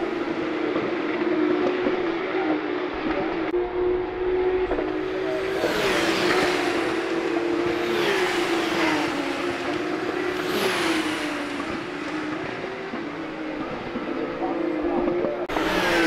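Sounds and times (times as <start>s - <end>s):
race cars passing: 0.0s - 16.0s.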